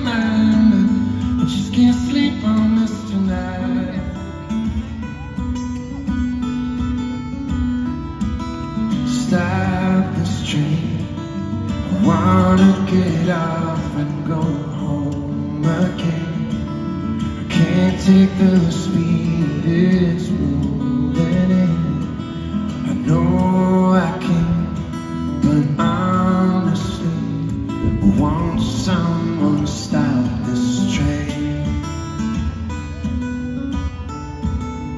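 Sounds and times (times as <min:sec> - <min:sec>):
man singing into a microphone: 0:00.0 - 0:05.5, 0:08.8 - 0:32.4
acoustic guitar: 0:00.0 - 0:34.9.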